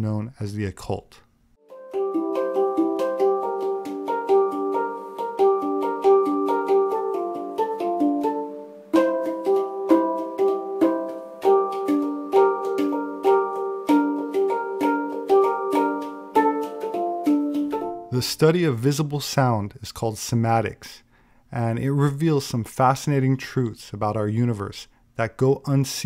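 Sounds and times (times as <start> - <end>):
fast repeated notes: 1.7 - 18.2.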